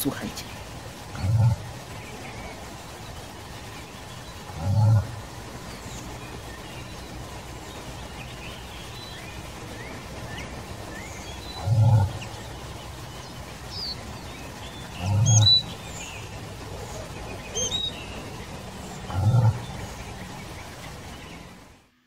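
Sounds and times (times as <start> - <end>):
moose grunting: 1.1 - 1.7, 4.5 - 5.3, 11.6 - 12.3, 14.8 - 15.7, 18.7 - 20.2.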